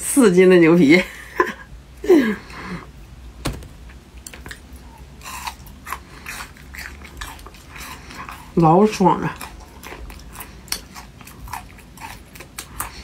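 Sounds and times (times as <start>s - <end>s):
wet chewing: 4.2s - 13.0s.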